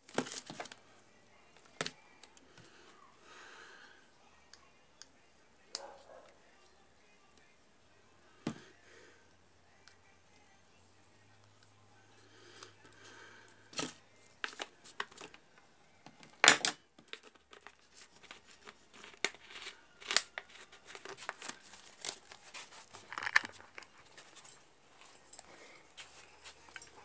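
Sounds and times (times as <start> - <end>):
plastic bottle crinkling and clicking: 16.4 - 23.9.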